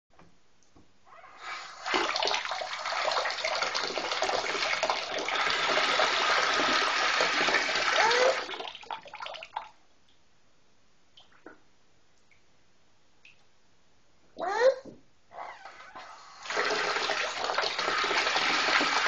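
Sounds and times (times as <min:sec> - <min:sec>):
faucet water rushing into tub: 0:01.3 - 0:09.8, 0:15.6 - 0:19.0
water trickling and dripping: 0:07.5 - 0:10.2, 0:11.2 - 0:11.6.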